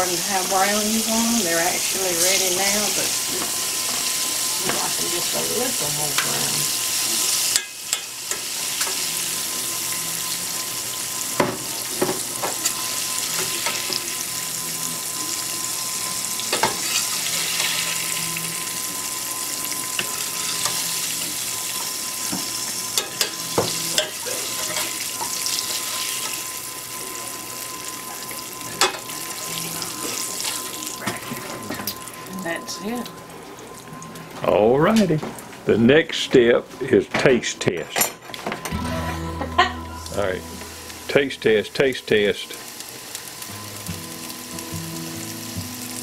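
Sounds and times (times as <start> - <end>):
fish frying in hot oil: 0.0 - 34.4, 40.2 - 46.0
metal spoon clinking on pan: 7.5 - 8.9, 23.0 - 25.3.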